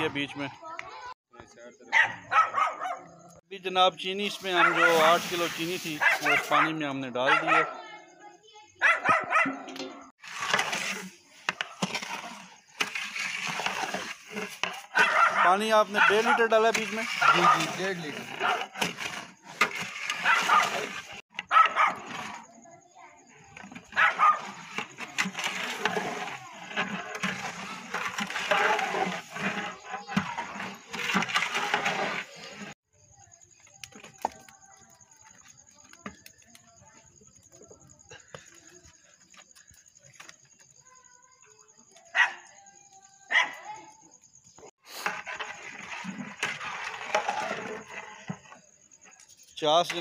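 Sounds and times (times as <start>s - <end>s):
metal ladle scraping sugar in pot: 4.2s - 6.6s, 9.8s - 22.5s, 23.5s - 32.8s, 44.8s - 48.7s.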